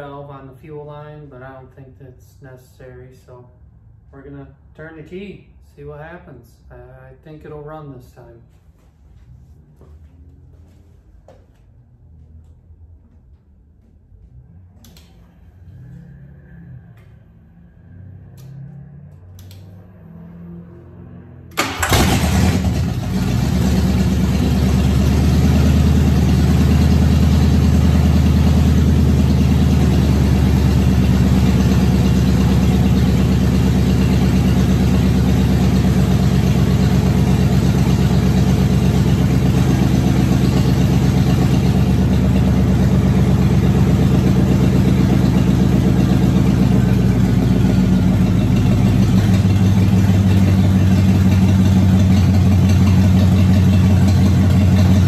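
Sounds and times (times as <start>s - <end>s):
car engine starting and running: 14.1s - 55.0s.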